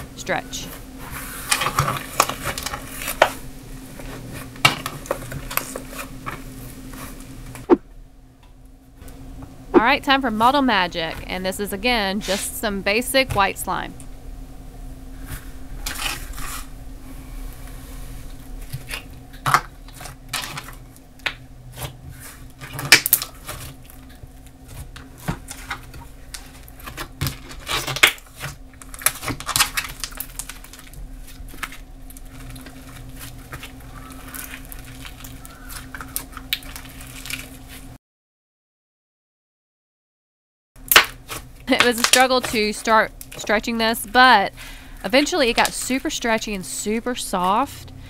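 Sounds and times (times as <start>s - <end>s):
slime squishing: 24.7s - 37.8s.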